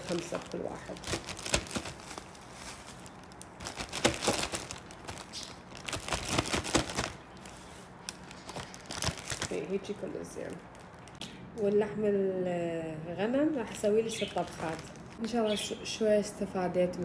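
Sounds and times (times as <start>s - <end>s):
plastic bags crinkling: 0.0s - 11.2s, 13.6s - 15.3s.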